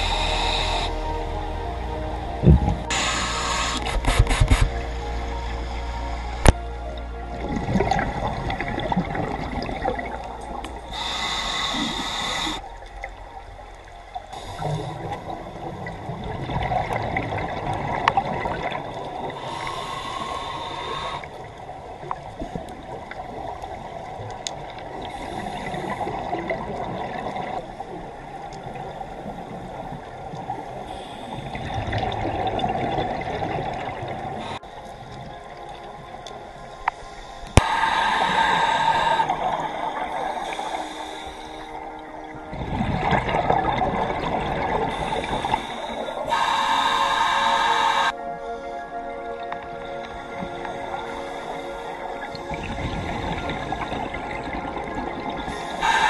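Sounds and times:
regulator hissing inhalations: 0:00.0 - 0:01.0, 0:02.9 - 0:04.8, 0:10.9 - 0:12.8, 0:14.3 - 0:15.2, 0:19.4 - 0:21.4, 0:30.9 - 0:31.9, 0:37.0 - 0:39.7, 0:40.3 - 0:41.8, 0:44.9 - 0:48.6, 0:55.5 - 0:56.0.

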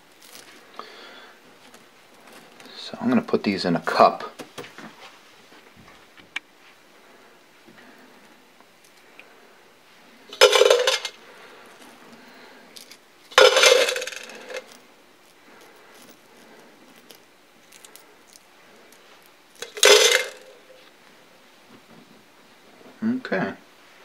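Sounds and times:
nuts and bolts clattering into can: 0:10.3 - 0:11.2, 0:12.8 - 0:14.8, 0:19.6 - 0:20.7.

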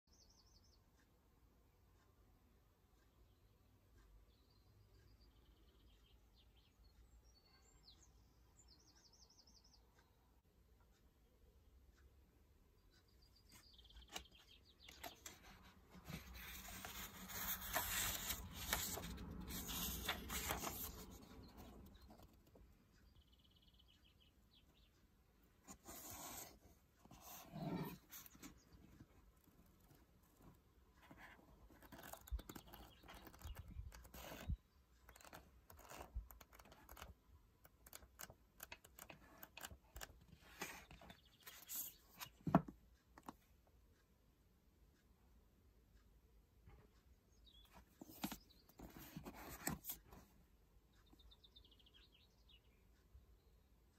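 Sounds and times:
book pages rustling and flicking: 0:13.5 - 0:22.5, 0:25.7 - 0:29.1, 0:31.1 - 0:37.2, 0:37.8 - 0:43.4, 0:48.0 - 0:50.3.

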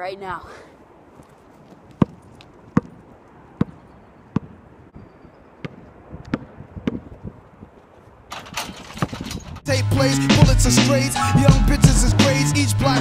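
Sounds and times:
basketball bouncing: 0:02.0 - 0:03.0, 0:03.6 - 0:04.6, 0:05.6 - 0:07.2.

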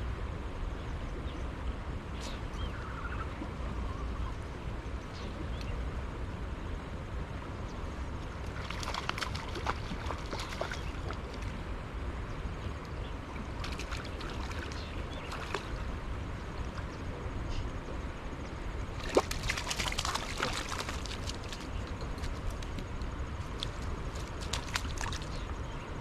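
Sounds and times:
fish splashing in water: 0:08.5 - 0:11.5, 0:13.6 - 0:15.8, 0:19.0 - 0:22.4, 0:23.5 - 0:25.4.

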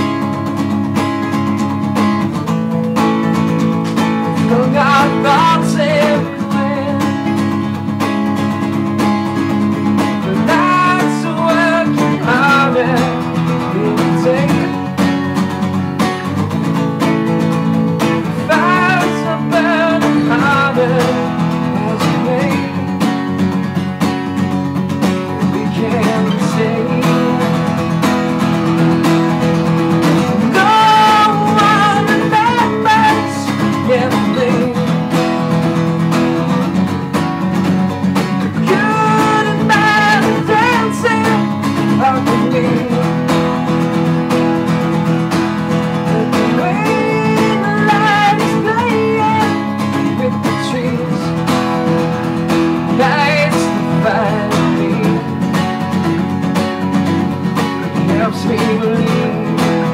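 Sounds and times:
acoustic guitar strumming: 0:00.0 - 0:59.9
man singing: 0:03.3 - 0:08.0, 0:08.7 - 0:15.4, 0:17.6 - 0:23.2, 0:25.0 - 0:28.8, 0:29.6 - 0:35.7, 0:38.1 - 0:44.9, 0:45.8 - 0:55.7, 0:57.8 - 0:59.9.

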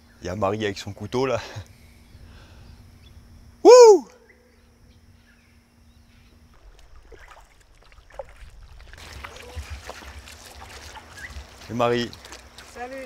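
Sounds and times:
footsteps splashing through water: 0:06.5 - 0:13.0.

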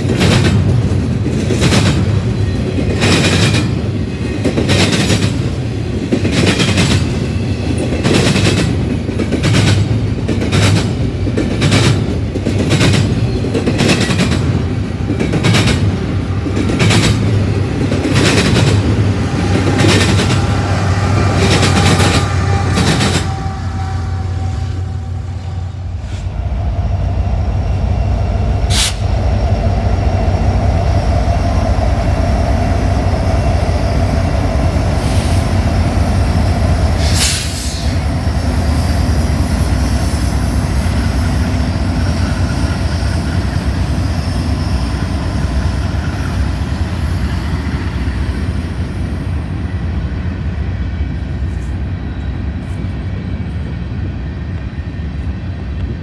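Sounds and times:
train wheels clicking over rail joints: 0:00.0 - 0:23.6
diesel locomotive engine drone: 0:00.0 - 0:56.0
low train rumble: 0:00.0 - 0:56.0.

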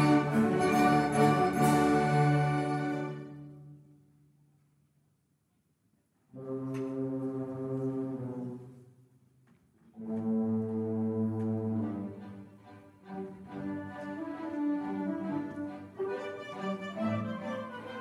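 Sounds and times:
orchestra playing held chords: 0:00.0 - 0:03.9.

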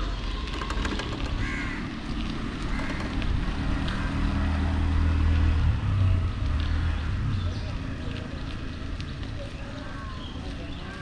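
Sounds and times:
wind and road rumble: 0:00.0 - 0:11.0
crows cawing: 0:01.2 - 0:02.0, 0:02.7 - 0:04.2.

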